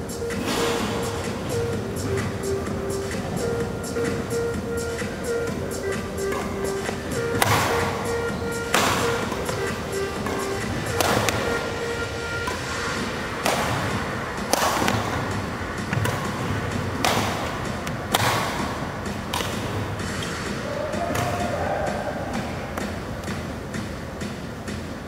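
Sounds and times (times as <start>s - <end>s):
rackets hitting shuttlecock: 5.9s - 11.8s, 12.4s - 23.4s.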